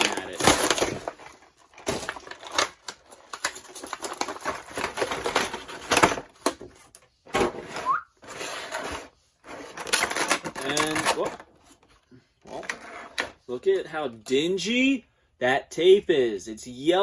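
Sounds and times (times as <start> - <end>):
plastic crinkling and clicking: 0.0 - 7.1.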